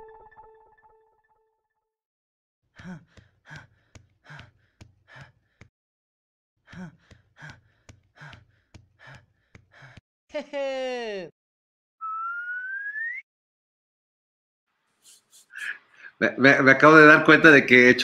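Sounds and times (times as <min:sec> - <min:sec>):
person panting hard: 0:02.8 - 0:05.7, 0:06.6 - 0:10.0.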